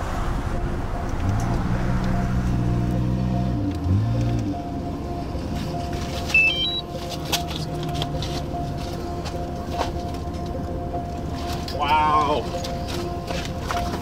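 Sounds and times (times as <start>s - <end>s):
vehicle passing by: 0.0s - 5.9s
low hum and rumble: 0.0s - 14.0s.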